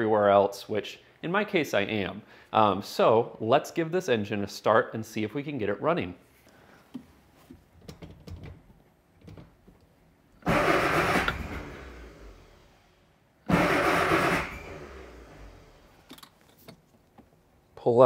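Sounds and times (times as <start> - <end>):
car engine cranking: 10.4 - 12.8, 13.4 - 16.6.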